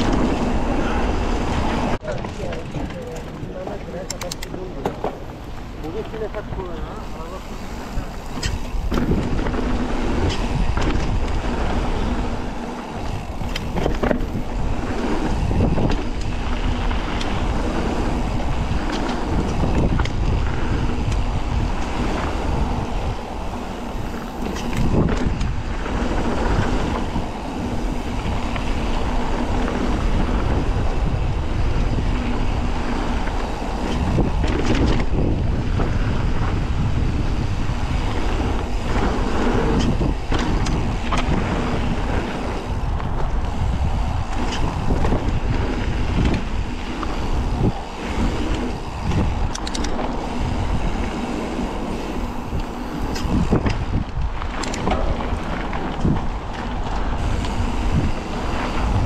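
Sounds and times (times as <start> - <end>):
bike knocking and rattling: 0.0 - 59.0
wind buffeting microphone: 0.0 - 59.0
tyre rumble on trail: 7.4 - 59.0.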